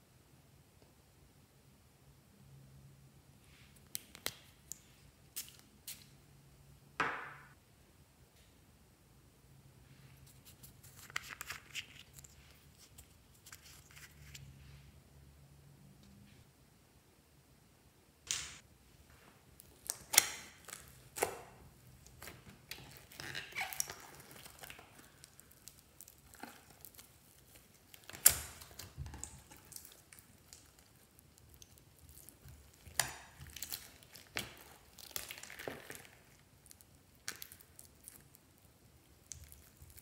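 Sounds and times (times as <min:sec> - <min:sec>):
slime squished by hand: 0:19.6 - 0:40.0
sharp slime pops: 0:19.7 - 0:21.6.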